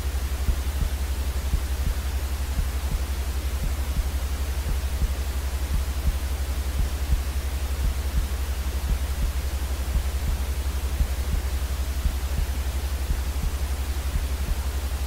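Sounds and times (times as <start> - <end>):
white noise hiss: 0.0 - 15.0.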